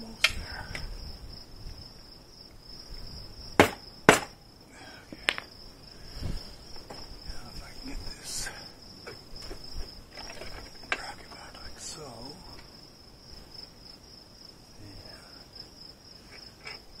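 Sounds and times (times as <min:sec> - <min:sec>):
crickets chirping: 0:00.0 - 0:17.0
sharp metal knocks: 0:03.6 - 0:04.4.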